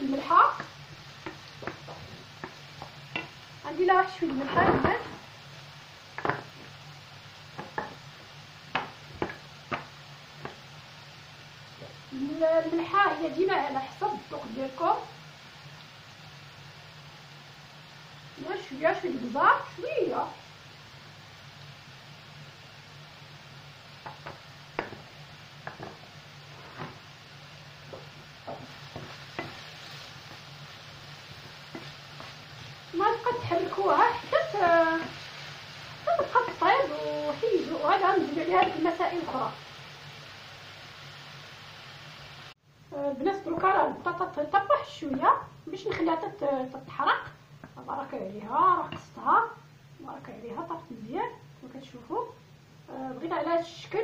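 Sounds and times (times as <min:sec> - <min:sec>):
potatoes sizzling in oil: 0:00.0 - 0:54.0
wooden spoon knocking and scraping pan: 0:00.2 - 0:03.4, 0:04.1 - 0:05.2, 0:06.1 - 0:06.8, 0:07.5 - 0:08.0, 0:08.7 - 0:10.6, 0:24.0 - 0:27.1, 0:27.8 - 0:30.5, 0:31.3 - 0:35.2, 0:48.8 - 0:49.2.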